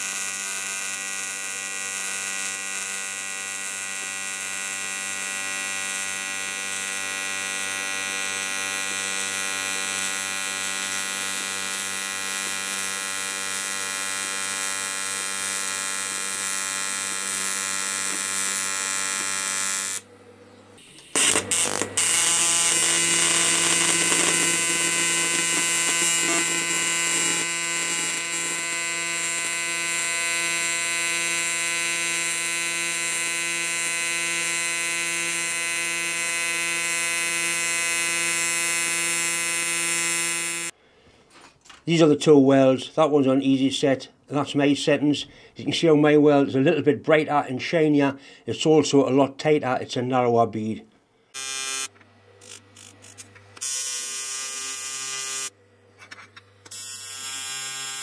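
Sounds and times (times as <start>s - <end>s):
tig welding arc buzzing: 0.0s - 20.1s, 20.8s - 40.8s, 51.3s - 55.5s, 56.6s - 58.0s.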